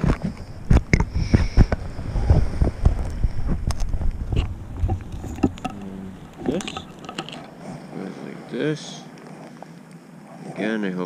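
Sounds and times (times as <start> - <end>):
wind buffeting microphone: 0.0 - 9.4
camera handling knocks and rustles: 3.6 - 7.7.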